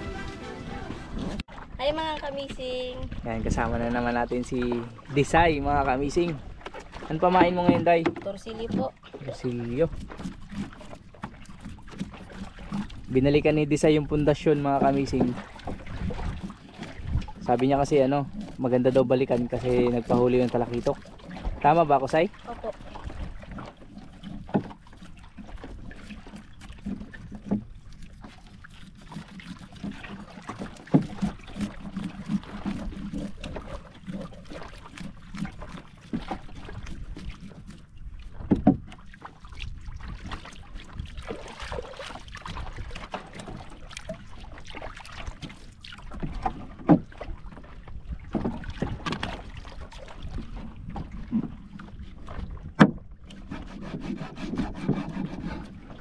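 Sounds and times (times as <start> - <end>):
wind and water noise: 0.0 - 56.0
knife scraping and cutting fish: 53.5 - 55.8.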